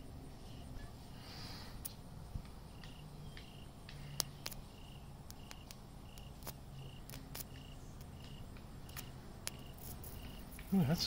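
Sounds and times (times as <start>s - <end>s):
cricket chirping: 0.0s - 11.0s
sharp electric arc clicks: 2.8s - 10.8s.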